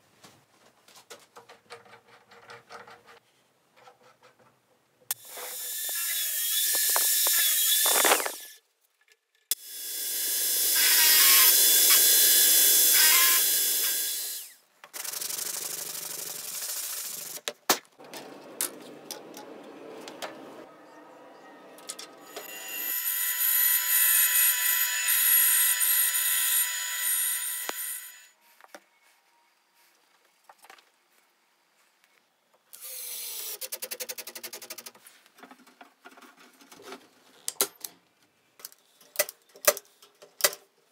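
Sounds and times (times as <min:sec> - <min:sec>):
bandsaw cutting: 0:05.1 - 0:08.6, 0:09.5 - 0:14.6, 0:22.2 - 0:28.3
cordless drill driving screw: 0:05.1 - 0:08.6, 0:09.5 - 0:15.1, 0:22.3 - 0:28.3
drill boring into wood: 0:05.1 - 0:08.6, 0:09.5 - 0:15.1, 0:22.3 - 0:28.3.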